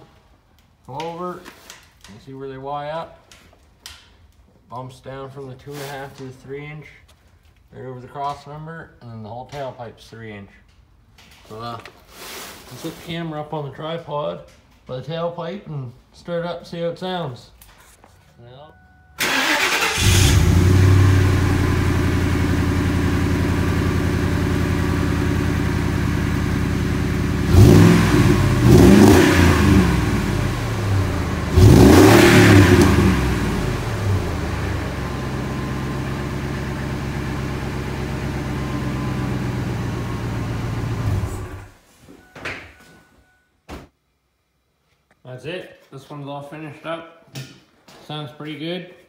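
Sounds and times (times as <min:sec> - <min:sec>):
car engine idling and revving: 0:19.9 - 0:41.8.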